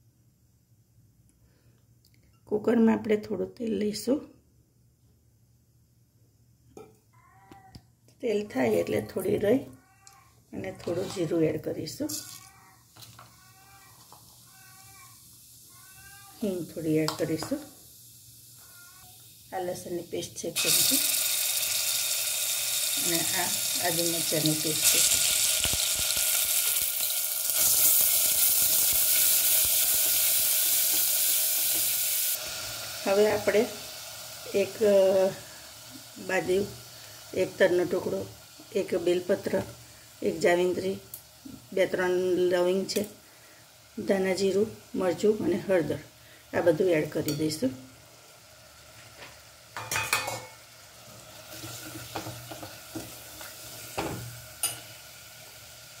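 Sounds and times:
spatula scraping pot: 10.7 - 14.3, 51.5 - 53.2
hot oil sizzling: 10.8 - 56.0.

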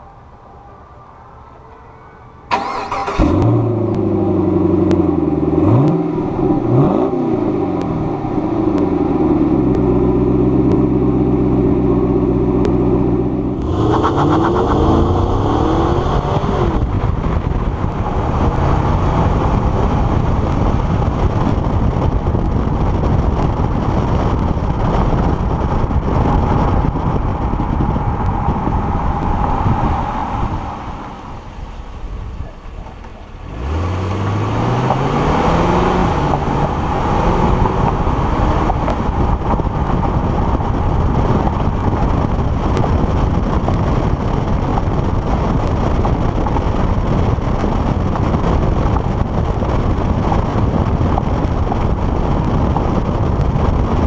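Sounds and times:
road and wind noise: 0.0 - 54.0
car accelerating: 2.5 - 54.0
car exhaust idling and revving: 2.5 - 54.0.

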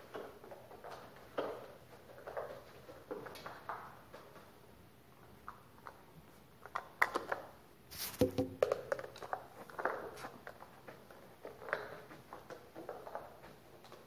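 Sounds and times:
mop swishing on tiled floor: 7.9 - 8.6.

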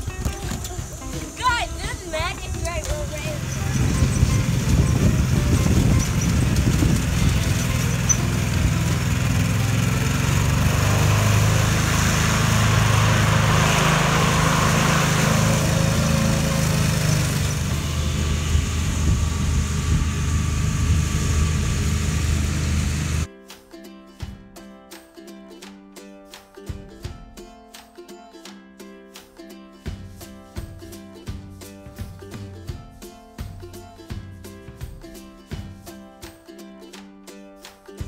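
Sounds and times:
riding mower engine drone: 0.0 - 23.3
rushing noise: 3.2 - 23.3.

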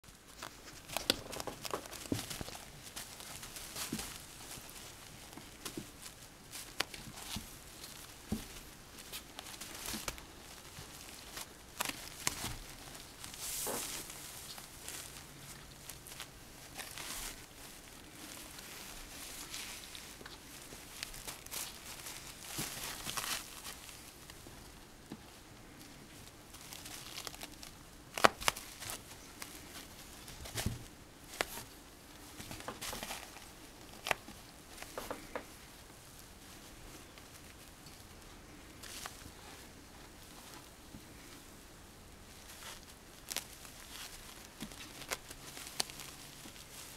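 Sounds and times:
plastic pad rustling: 0.1 - 46.9.

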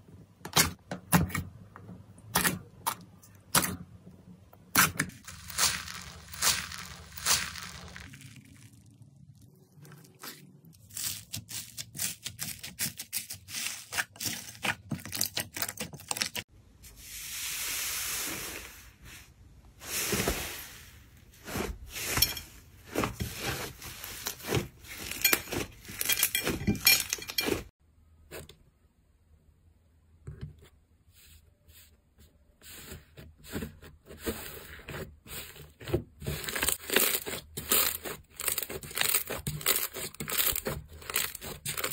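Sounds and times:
slime crackling: 5.2 - 12.6
air hissing out of slime: 16.9 - 21.1.

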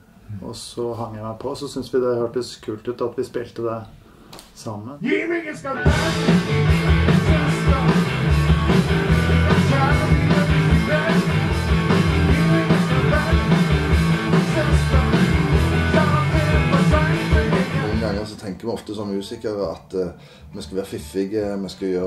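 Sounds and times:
bass guitar: 5.7 - 18.3
electric guitar riff: 5.7 - 18.3
drum kit beats: 5.8 - 18.3.

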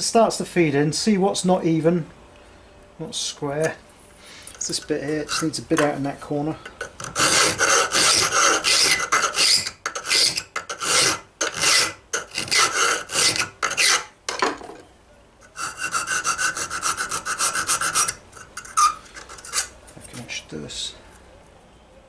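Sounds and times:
file rasping on steel: 5.1 - 5.6, 6.7 - 14.1, 15.5 - 19.8.

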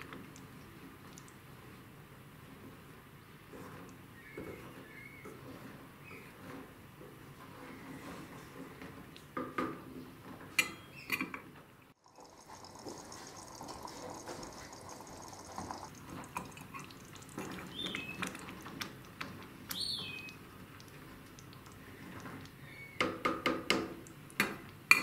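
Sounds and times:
sauce bubbling in a pot: 0.0 - 2.5, 11.9 - 25.0
wooden spoon stirring: 12.0 - 22.6.

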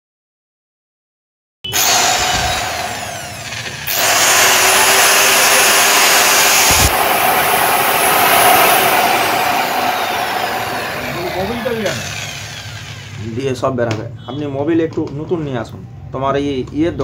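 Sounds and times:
electric chainsaw running: 1.7 - 13.4.

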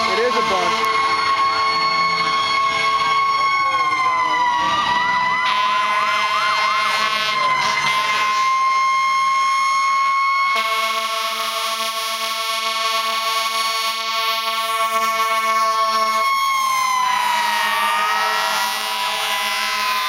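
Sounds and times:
fire engine sirens wailing: 0.0 - 20.0
deep horn: 5.4 - 8.6.

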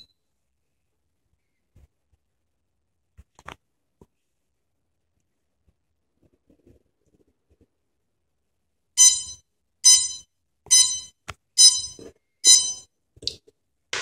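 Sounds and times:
short bright beeps: 9.0 - 12.8.

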